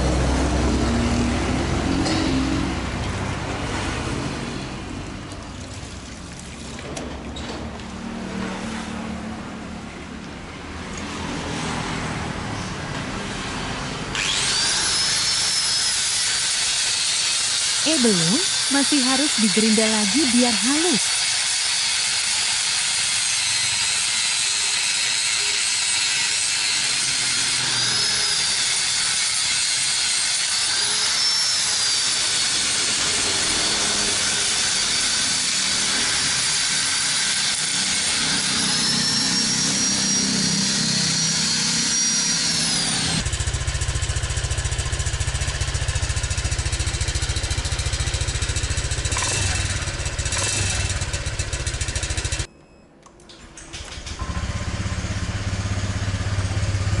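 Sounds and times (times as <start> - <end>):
angle grinder grinding metal: 14.1 - 52.5
scooter engine idling: 43.2 - 52.5, 54.0 - 57.0.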